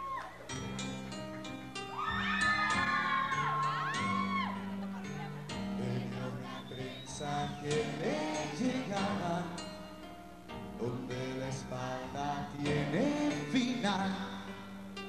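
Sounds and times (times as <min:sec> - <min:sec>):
cumbia band playing: 0:00.5 - 0:06.6
high whooping calls: 0:01.3 - 0:09.4.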